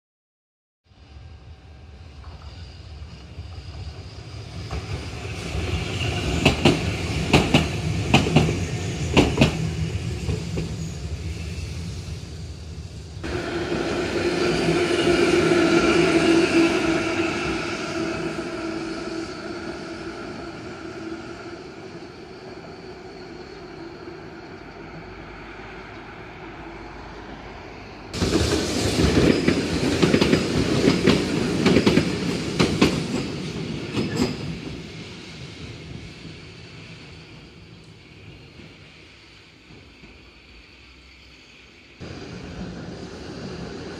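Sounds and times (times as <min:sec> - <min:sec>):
tram humming tone: 0:01.0 - 0:43.9
tram rumble and clatter: 0:01.0 - 0:43.9
tram wheels clacking over rail joints: 0:04.7 - 0:10.8, 0:28.2 - 0:34.9.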